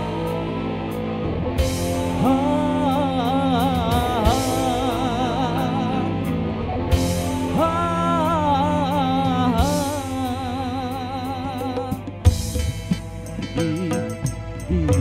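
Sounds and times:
band music with vibrato melody: 0.0 - 15.0
drum hits: 12.0 - 15.0.

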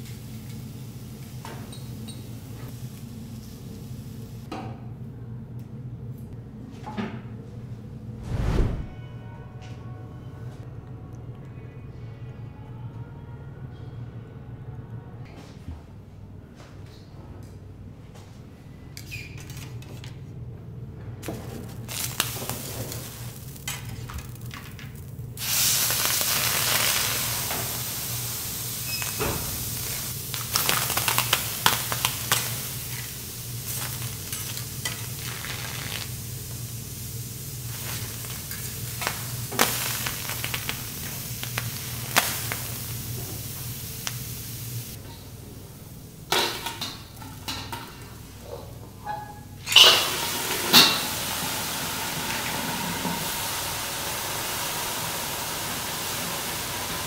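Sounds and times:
lobster sizzling on griddle: 21.4 - 45.0, 49.8 - 57.0.

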